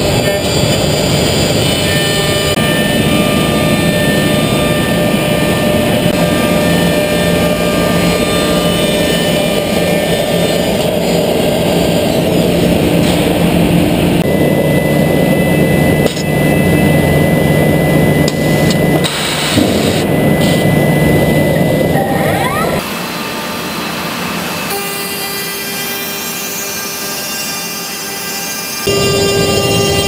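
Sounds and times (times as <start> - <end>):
machine routing and drilling wood: 0.0 - 13.1, 21.4 - 30.0
spindle hum: 0.0 - 22.9
thin high machine whine: 0.0 - 30.0
short rising whine: 0.4 - 23.7.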